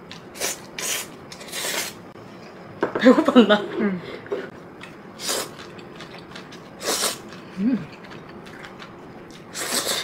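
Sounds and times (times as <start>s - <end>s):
person humming: 7.6s - 8.0s
slurping noodles: 9.5s - 10.0s.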